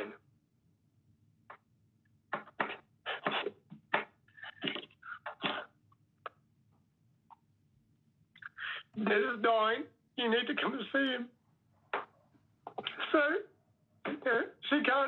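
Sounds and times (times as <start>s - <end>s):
man sniffling: 2.6s - 3.6s.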